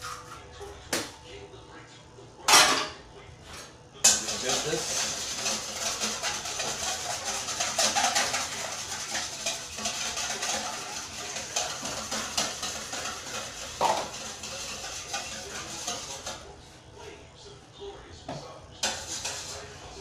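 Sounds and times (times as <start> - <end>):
wire whisk scraping metal bowl: 4.0 - 16.6, 18.8 - 20.0
knock on metal bowl: 13.8 - 14.1.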